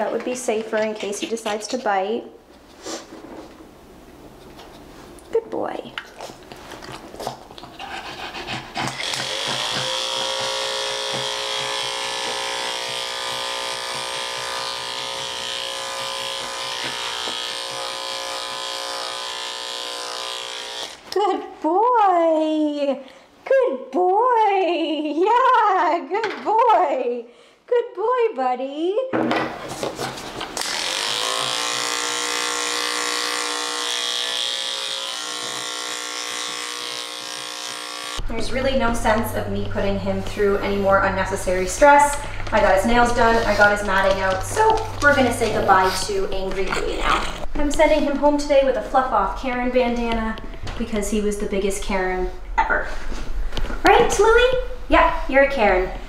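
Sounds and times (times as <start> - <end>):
electric clippers humming: 8.9 - 21.3, 30.6 - 39.9, 41.3 - 46.8.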